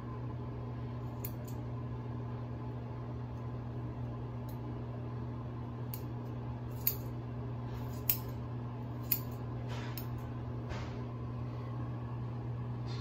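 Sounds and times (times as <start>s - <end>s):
steady low hum: 0.0s - 13.0s
scissors snipping hair: 1.1s - 1.6s, 6.7s - 7.1s, 7.8s - 8.4s, 9.0s - 9.4s.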